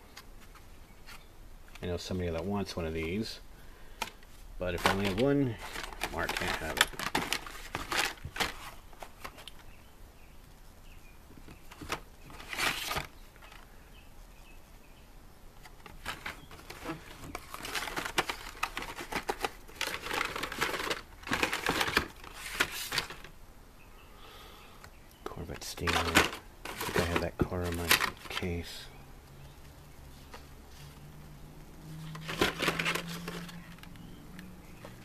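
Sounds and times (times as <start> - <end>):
blister packs crinkling and clacking: 4.0 - 9.7, 15.6 - 23.3, 25.3 - 28.8, 32.1 - 35.0.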